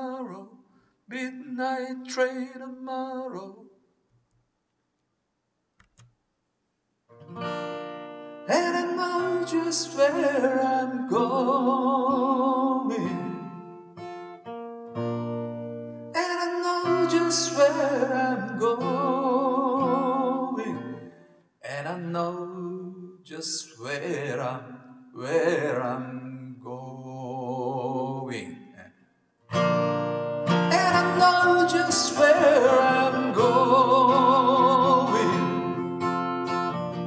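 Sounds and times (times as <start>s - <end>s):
person singing: 0.0s - 3.7s, 8.5s - 13.8s, 16.2s - 28.9s, 30.6s - 36.0s
acoustic guitar: 0.0s - 4.5s, 7.1s - 37.0s.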